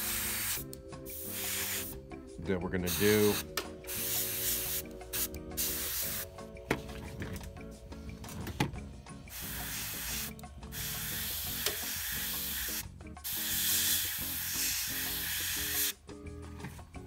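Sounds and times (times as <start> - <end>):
airbrush spraying hiss: 0.0 - 2.0, 2.9 - 6.4, 9.3 - 16.0
background music: 0.0 - 17.0.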